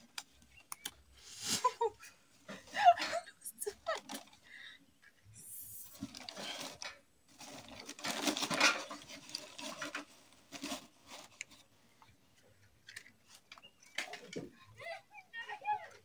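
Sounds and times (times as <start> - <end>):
paper and kindling rustling: 5.7 - 11.7.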